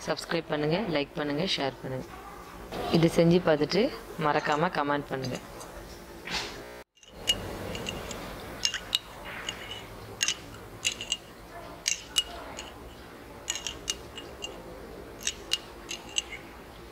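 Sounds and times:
metal spoon clinking in glass: 0:07.0 - 0:16.5.

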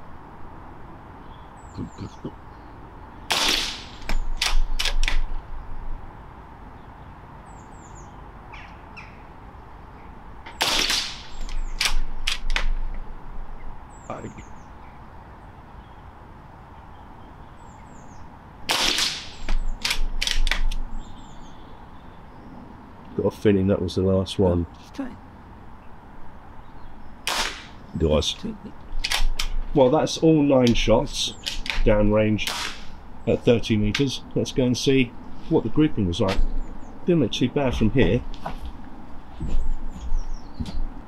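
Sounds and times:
air rifle shot pop: 0:03.3 - 0:05.2, 0:27.3 - 0:27.8, 0:32.4 - 0:32.9
rifle bolt clacks: 0:03.5 - 0:05.2, 0:18.9 - 0:20.8.

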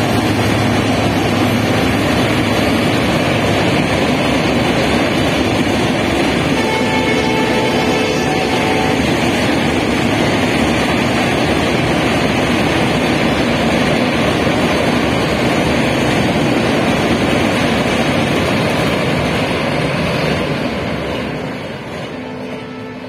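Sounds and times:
train rumbling across bridge: 0:00.0 - 0:23.0.

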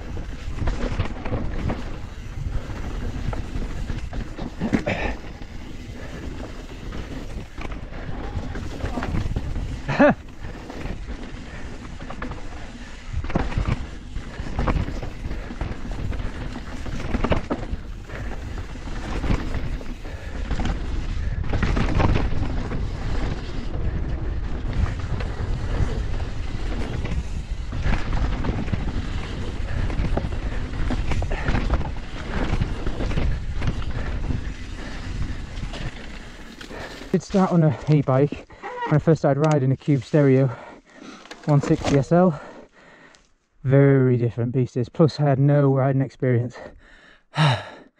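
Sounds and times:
wind noise on microphone: 0:00.0 - 0:36.8
bike knocks and rattles: 0:00.1 - 0:36.8.

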